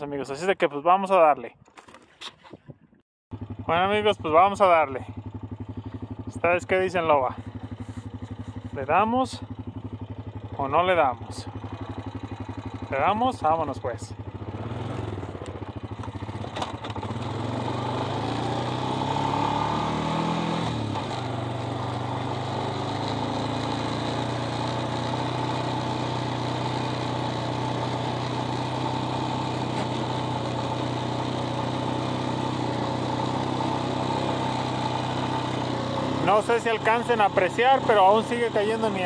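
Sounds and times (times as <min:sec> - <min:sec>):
vehicle engine pulling away: 0:07.0 - 0:10.5, 0:14.3 - 0:39.0.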